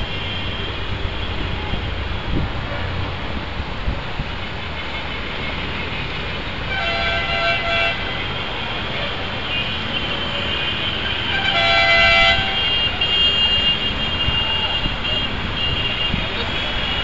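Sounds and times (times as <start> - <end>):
traffic din: 0.0 - 17.0
vehicle horns honking: 6.7 - 17.0.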